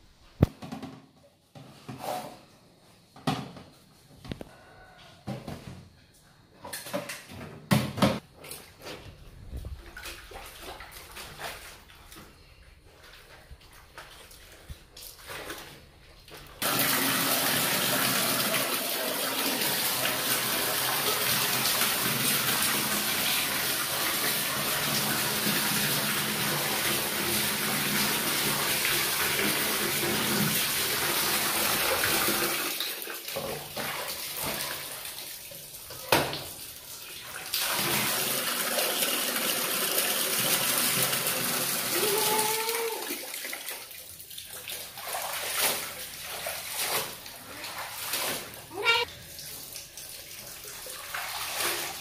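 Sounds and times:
tap water rushing into metal basin: 0:16.6 - 0:42.0.

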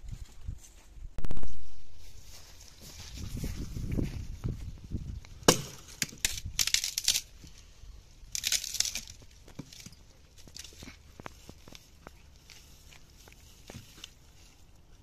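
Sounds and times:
twigs crackling: 0:01.2 - 0:15.0
dry branches snapping: 0:05.2 - 0:07.6, 0:08.2 - 0:14.2.

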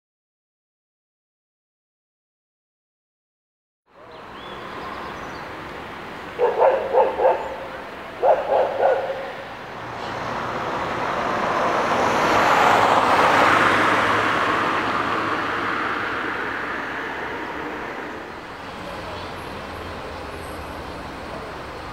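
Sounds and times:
vehicle passing by: 0:04.0 - 0:21.9
dog barking: 0:06.4 - 0:09.4.

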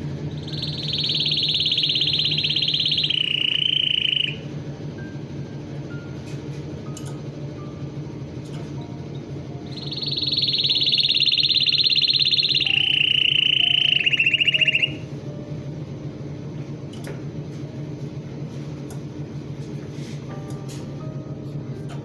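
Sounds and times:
steady low hum: 0:00.0 - 0:22.0
canary trilling: 0:00.3 - 0:04.5, 0:09.6 - 0:15.1.

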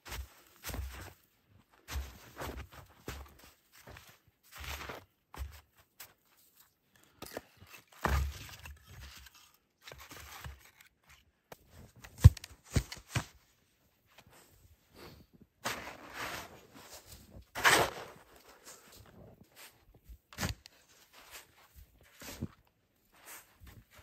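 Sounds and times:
footsteps crunching in snow: 0:00.0 - 0:06.5, 0:14.3 - 0:24.0
snow shovel scraping: 0:15.6 - 0:19.8, 0:20.4 - 0:22.5, 0:23.2 - 0:24.0.

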